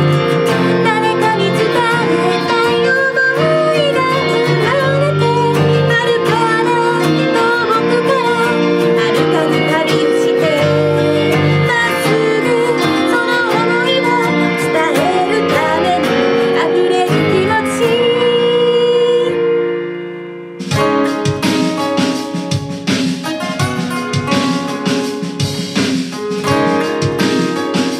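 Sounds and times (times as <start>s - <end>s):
woman singing: 0.0s - 19.8s
acoustic guitar: 0.0s - 27.9s.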